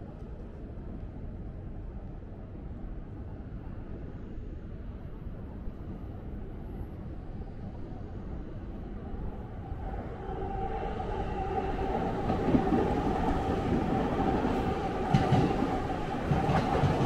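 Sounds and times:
city traffic rumble: 0:08.5 - 0:17.0.

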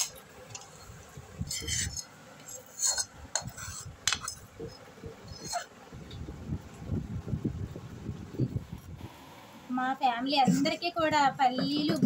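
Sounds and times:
metal spoon scraping and clinking: 0:00.0 - 0:05.7.

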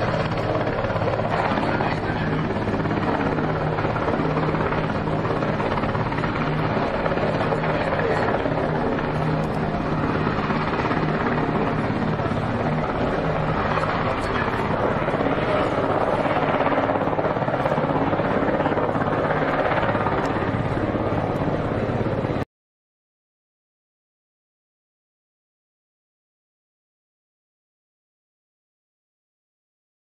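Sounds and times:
ship machinery drone: 0:00.0 - 0:22.4.

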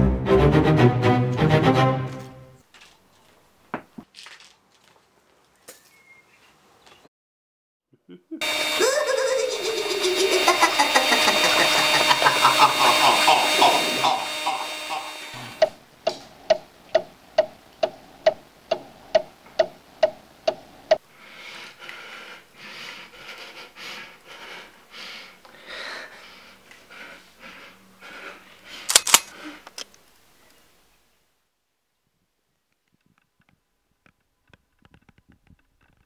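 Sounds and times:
clock ticking: 0:15.4 - 0:21.0.

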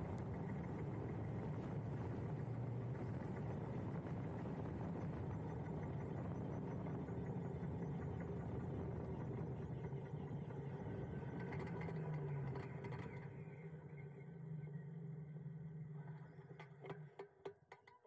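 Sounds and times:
wind and road noise: 0:00.0 - 0:13.8
faint hum: 0:00.0 - 0:17.2.

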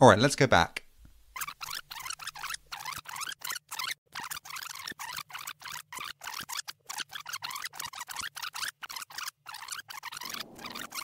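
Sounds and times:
video rewind sound effect: 0:10.2 - 0:11.0.

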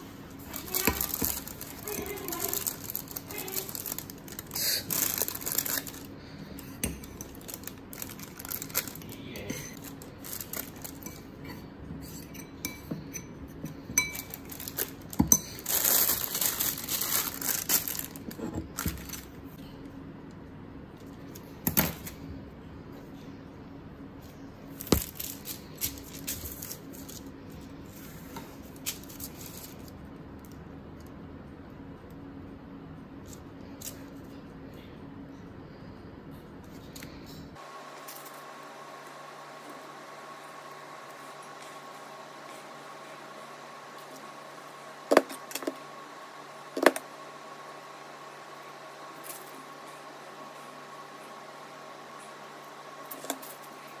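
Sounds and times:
plastic bag crinkling: 0:00.4 - 0:06.2, 0:07.0 - 0:11.3, 0:14.1 - 0:19.5, 0:24.8 - 0:27.3.

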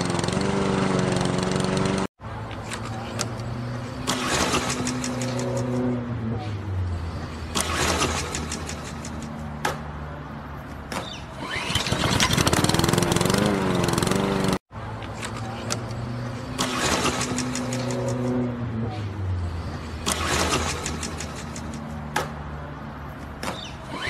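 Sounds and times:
lawn mower cord pulls: 0:00.0 - 0:02.1, 0:11.4 - 0:14.6
lawn mower engine running: 0:00.0 - 0:02.1, 0:11.4 - 0:14.6.

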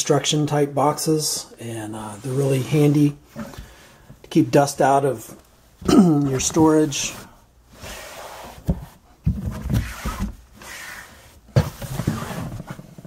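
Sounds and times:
box scraping and rustling: 0:06.3 - 0:13.0.

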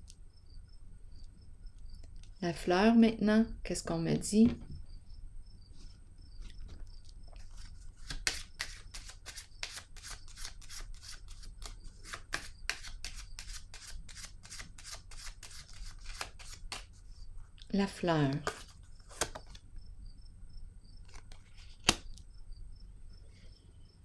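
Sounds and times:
cards being shuffled: 0:07.4 - 0:17.0, 0:18.2 - 0:19.6, 0:21.0 - 0:22.1.

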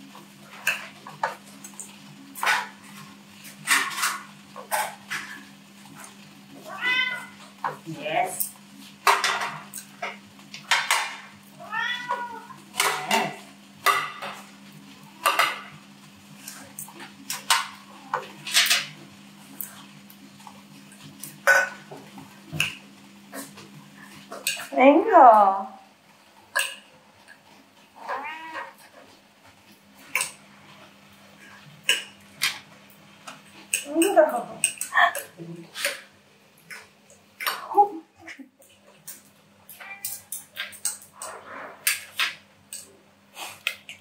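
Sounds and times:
cat meowing: 0:06.6 - 0:07.4, 0:11.6 - 0:13.4, 0:28.0 - 0:28.8.

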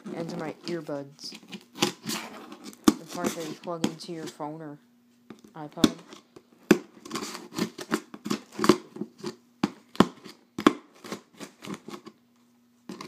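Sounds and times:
plug scraping packing tape: 0:01.2 - 0:03.7, 0:07.0 - 0:09.4.

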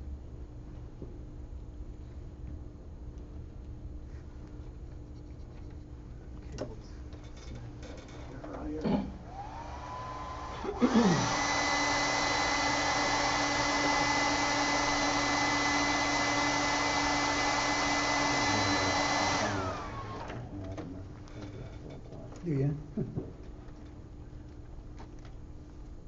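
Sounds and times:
hair dryer blowing: 0:09.3 - 0:20.6.

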